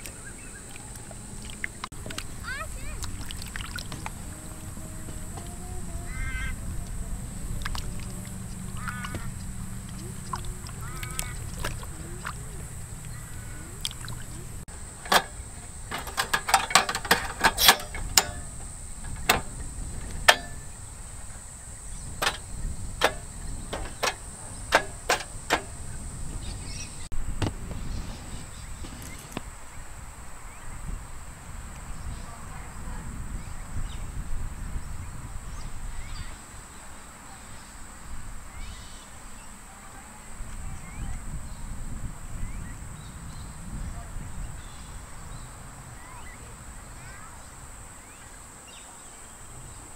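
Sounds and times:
ducks quacking: 0.0 - 14.9
low steady rumble: 0.0 - 28.7
gas canister clicking into stove: 14.8 - 20.7, 22.2 - 25.9.

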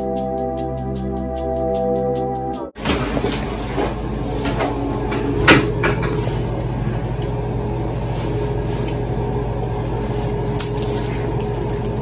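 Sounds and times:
low room hum: 2.8 - 12.0.

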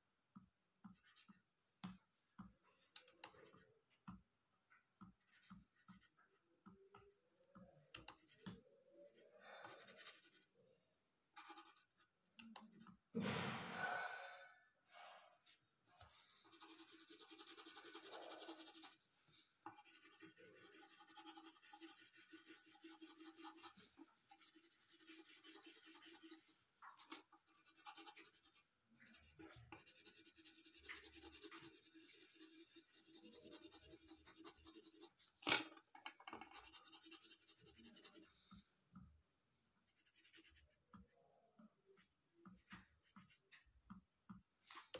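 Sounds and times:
pencil scratching on paper: 0.9 - 1.5, 3.2 - 3.9, 5.1 - 6.3, 8.0 - 10.6, 11.4 - 13.0, 16.0 - 35.3, 36.4 - 38.5, 39.8 - 41.1, 42.0 - 43.7.

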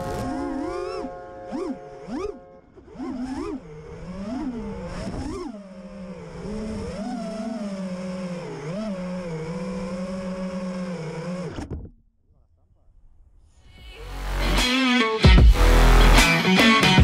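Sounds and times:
drone motors whining: 0.0 - 11.9.

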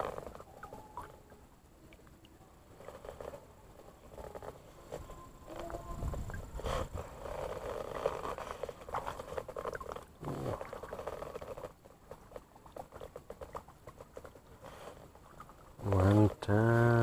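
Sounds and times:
shallow water lapping and splashing: 5.6 - 16.4.

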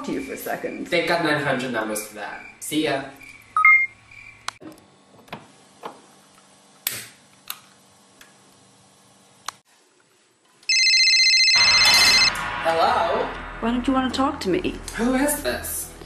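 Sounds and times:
short electronic beep: 3.6 - 3.9, 11.5 - 12.4
telephone ringing: 10.7 - 12.3.

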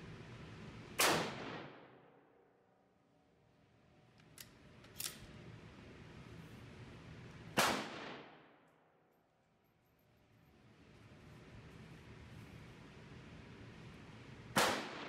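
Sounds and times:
rifle shot: 1.0 - 2.0, 7.6 - 8.5, 14.5 - 15.0
small sharp clicks: 4.1 - 5.3.

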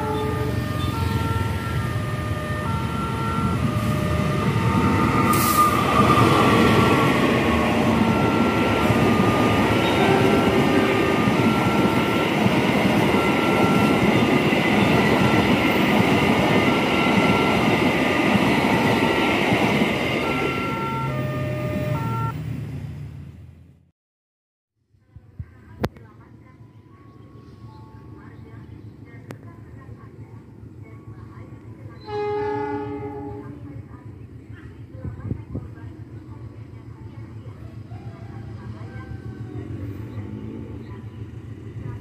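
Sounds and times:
train wheels rumbling on rails: 0.0 - 22.3
short beeping tones: 20.2 - 22.3.

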